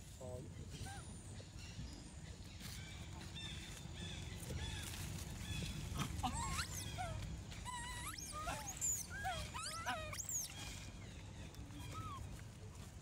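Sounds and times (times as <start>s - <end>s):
animal chirps and squeaks: 4.6s - 10.9s, 11.7s - 12.4s.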